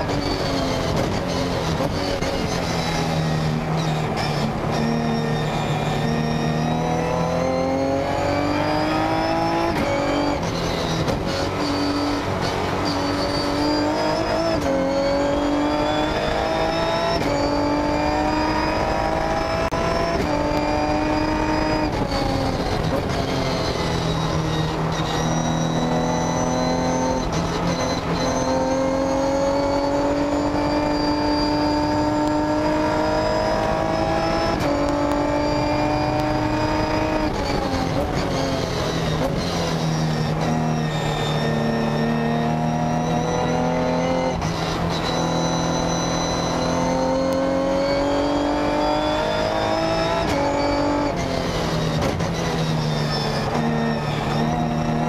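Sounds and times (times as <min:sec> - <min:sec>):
race car engine accelerating: 0:00.0 - 0:55.0.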